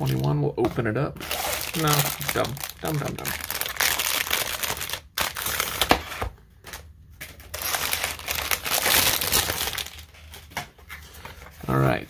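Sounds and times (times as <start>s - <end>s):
plastic shrink wrap crinkling: 1.2s - 6.0s, 7.3s - 10.6s.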